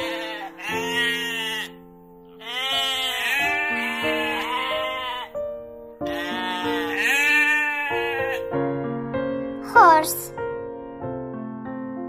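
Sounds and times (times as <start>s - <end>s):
sheep bleating: 0.0s - 5.4s, 6.0s - 8.5s
background music with sustained notes: 0.0s - 12.0s.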